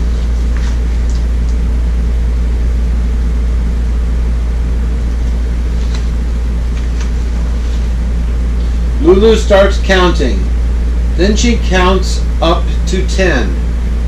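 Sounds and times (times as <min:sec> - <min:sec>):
book pages rustling: 0:00.0 - 0:01.3, 0:05.0 - 0:08.0
steady low hum: 0:00.0 - 0:14.0.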